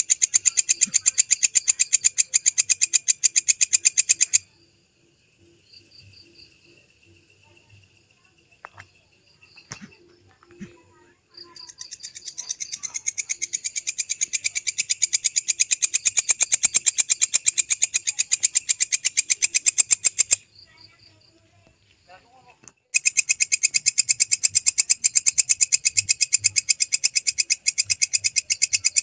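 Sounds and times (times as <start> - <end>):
katydid chirping: 0.0 - 21.4, 22.6 - 29.0.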